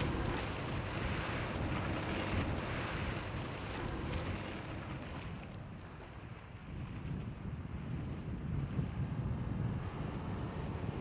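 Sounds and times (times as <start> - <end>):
water rushing: 0.0 - 7.1
wind rushing: 6.9 - 11.0.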